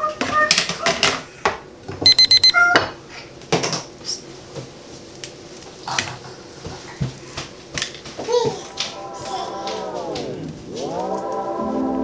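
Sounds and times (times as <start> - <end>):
short high beeps: 2.0 - 2.6.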